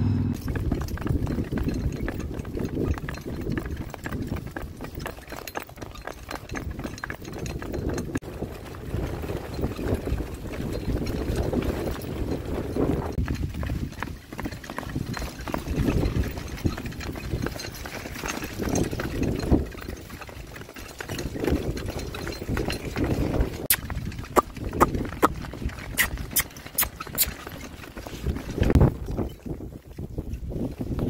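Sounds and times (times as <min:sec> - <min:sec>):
steady low rumble: 0:00.0 - 0:00.7
pony hoofbeats: 0:00.3 - 0:31.0.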